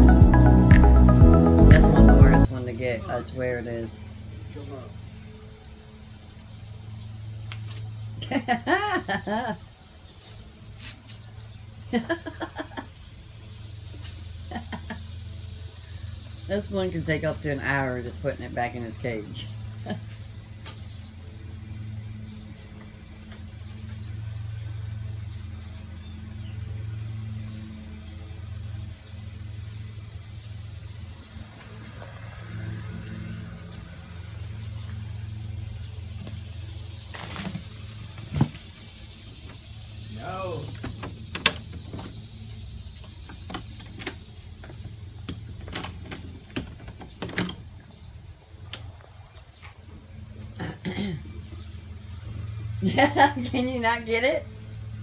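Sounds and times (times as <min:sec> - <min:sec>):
engine idling: 0:13.0 - 0:55.0
low hum: 0:17.9 - 0:55.0.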